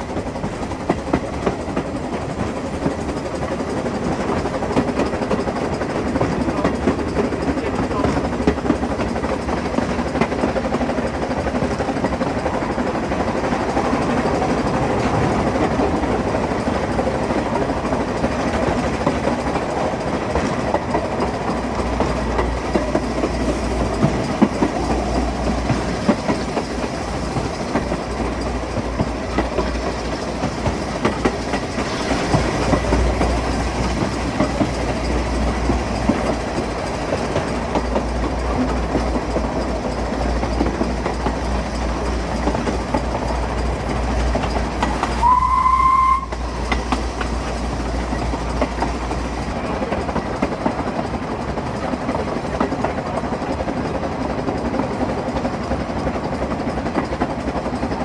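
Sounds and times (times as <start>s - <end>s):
wheels clattering over rail joints: 0.0s - 45.3s, 46.2s - 58.0s
steam locomotive running: 0.0s - 58.0s
steam whistle blast: 45.1s - 46.4s.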